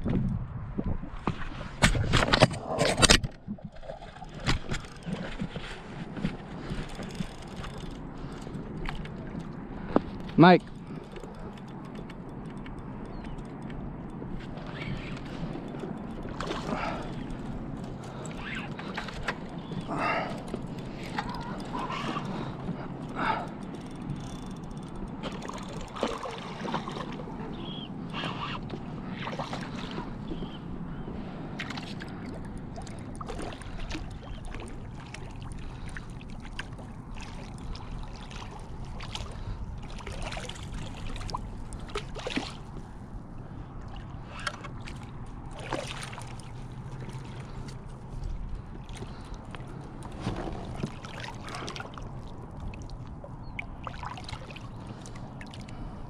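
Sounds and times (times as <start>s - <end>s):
water sloshing against kayak hull: 0.7s - 12.8s, 13.8s - 56.0s
fish thrashing and splashing: 1.5s - 9.9s, 14.5s - 27.6s, 43.9s - 55.9s.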